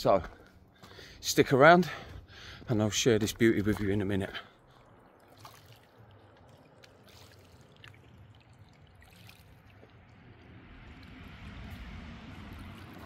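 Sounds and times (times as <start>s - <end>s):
small waves lapping: 3.6s - 13.0s.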